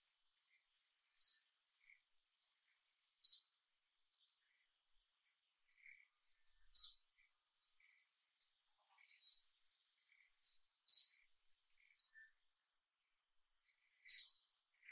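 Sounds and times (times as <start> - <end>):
faint high-pitched hum: 0.0 - 14.9
high bird chirps: 1.2 - 2.0, 3.0 - 3.5, 5.7 - 7.9, 8.9 - 11.2, 14.0 - 14.9.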